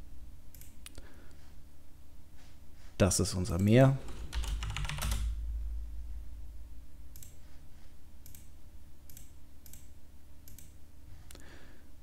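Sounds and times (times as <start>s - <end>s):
steady low hum: 0.0s - 12.0s
computer mouse clicks: 0.5s - 1.0s, 7.1s - 7.4s, 8.2s - 11.4s.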